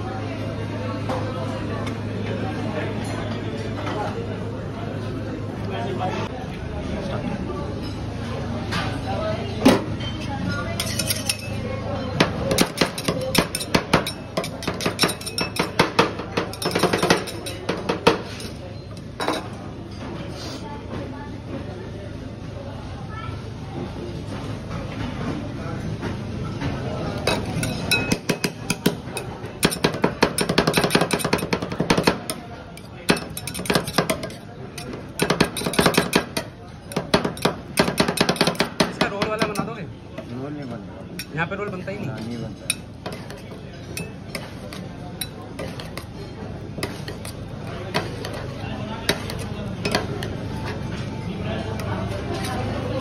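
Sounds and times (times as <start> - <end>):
metal spatulas clacking on steel: 10.8 - 11.6, 12.2 - 18.2, 27.2 - 39.7.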